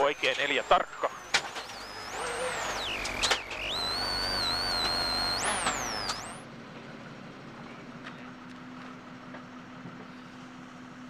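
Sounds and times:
sharp cracks: 0:00.0 - 0:06.4
rally car engine whining: 0:00.0 - 0:06.6.

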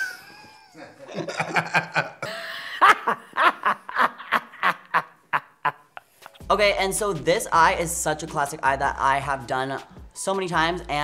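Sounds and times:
hearty laughter: 0:00.0 - 0:06.0.

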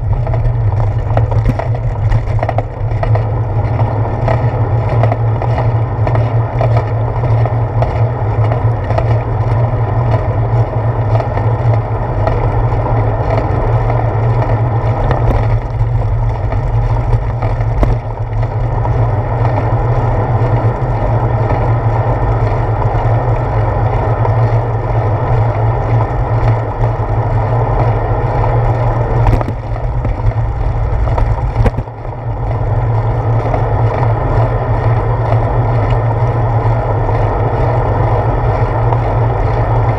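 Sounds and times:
low wind rumble: 0:00.0 - 0:39.9
road vibration: 0:00.0 - 0:39.9.

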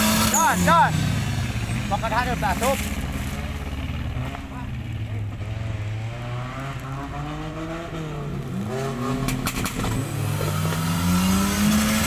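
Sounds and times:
engine revving at low revs: 0:00.0 - 0:12.0.

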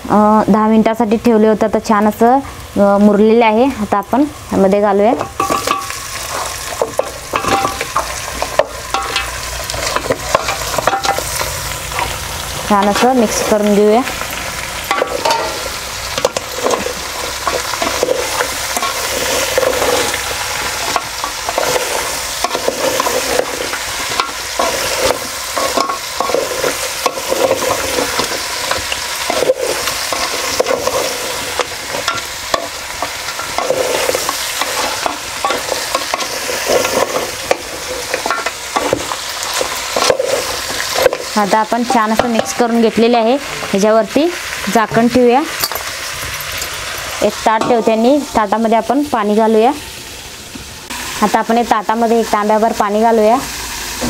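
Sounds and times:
meat sizzling in hot oil: 0:00.3 - 0:54.0
metal spatula scraping pot: 0:05.2 - 0:13.9, 0:14.8 - 0:42.9.

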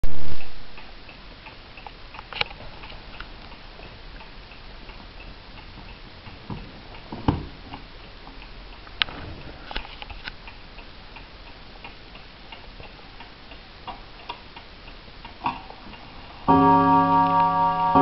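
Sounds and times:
clock ticking: 0:10.4 - 0:18.0.

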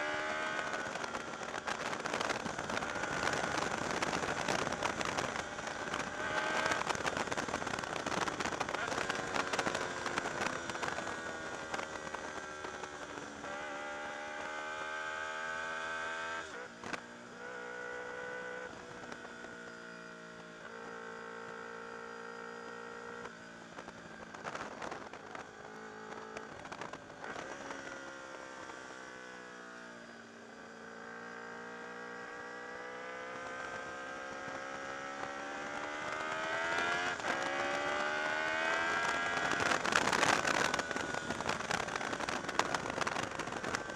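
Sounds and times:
motorcycle engine accelerating: 0:00.0 - 0:43.9
gear changes: 0:00.1 - 0:17.0, 0:32.3 - 0:43.9.

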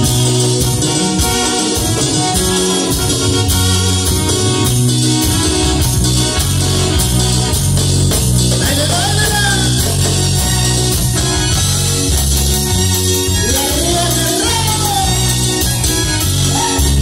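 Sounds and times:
live dance band music: 0:00.0 - 0:17.0
person singing: 0:08.6 - 0:10.2, 0:13.3 - 0:15.6, 0:16.4 - 0:17.0.

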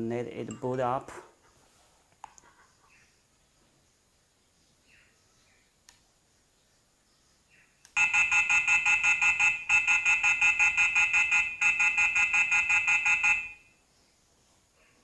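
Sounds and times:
doorbell rapid beeping: 0:08.0 - 0:13.7.

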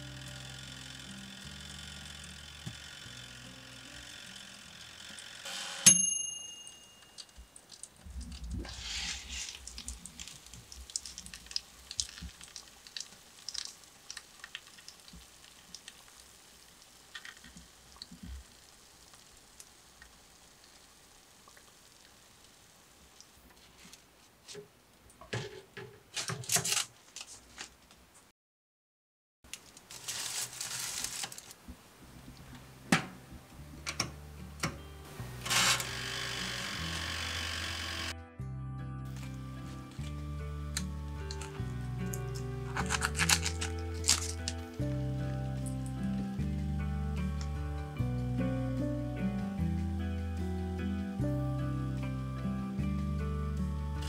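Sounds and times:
timer bell ding: 0:05.5 - 0:07.4
aluminium foil crinkling: 0:07.1 - 0:19.2, 0:26.1 - 0:27.9, 0:29.5 - 0:31.6, 0:40.7 - 0:44.8.

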